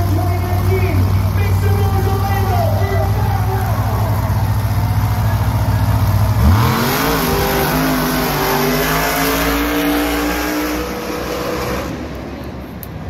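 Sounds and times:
truck engine idling and revving: 0.0 - 13.0.

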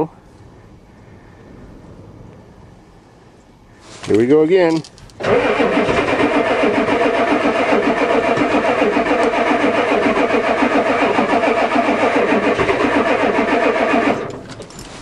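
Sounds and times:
truck engine cranking on starter: 4.8 - 15.0.

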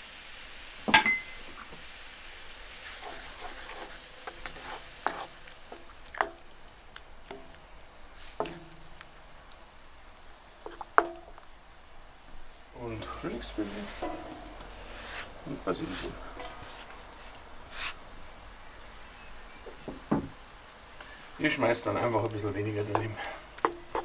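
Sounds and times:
sauce sizzling in a skillet: 0.0 - 24.0
wooden spatula stirring sauce: 2.8 - 24.0
spatula knocking against pan: 6.2 - 6.4, 10.7 - 11.4.

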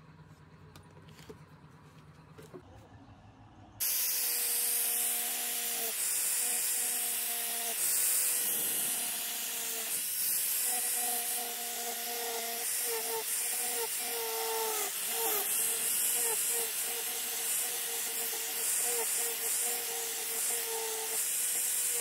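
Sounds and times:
angle grinder carving wood: 3.8 - 22.0.

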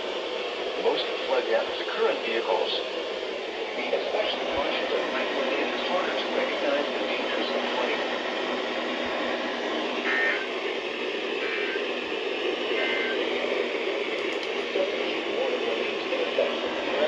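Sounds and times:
radio static hiss: 0.0 - 17.0
faint short tones: 12.8 - 13.3.

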